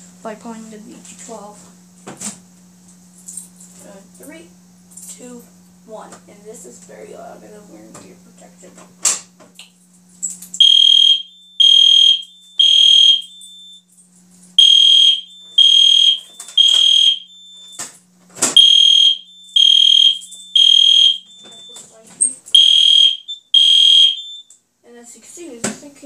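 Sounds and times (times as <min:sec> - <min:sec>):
faint steady panel hum: 0:00.0 - 0:26.0
fire alarm horns beeping: 0:10.6 - 0:17.9, 0:18.6 - 0:24.6.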